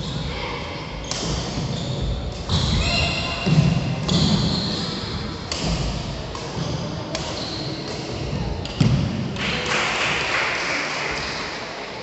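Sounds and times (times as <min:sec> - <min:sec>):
voices in a hall: 0:00.0 - 0:12.0
racket hitting shuttlecock: 0:05.4 - 0:09.2.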